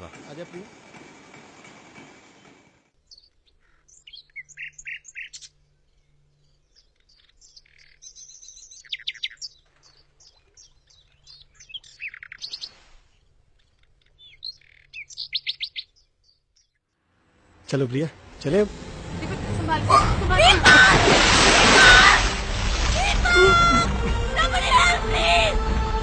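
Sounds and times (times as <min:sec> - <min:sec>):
small birds chirping: 0:02.4 - 0:16.9.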